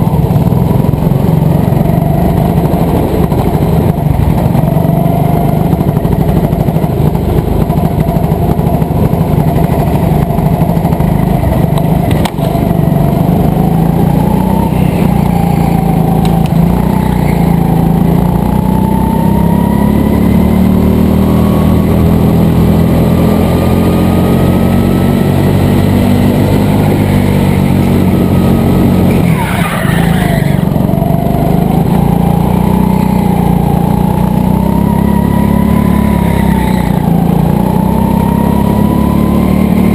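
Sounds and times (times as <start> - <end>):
go-kart engine racing: 0.0 - 39.9.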